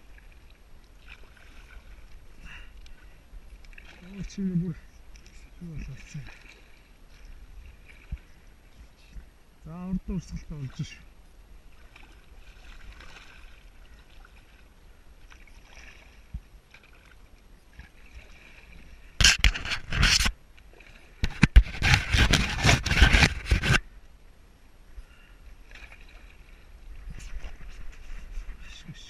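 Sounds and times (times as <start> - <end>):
paddle strokes splashing water: 0.0 - 9.3, 10.1 - 23.9, 25.1 - 29.0
faint water trickling: 0.0 - 19.2, 23.9 - 29.0.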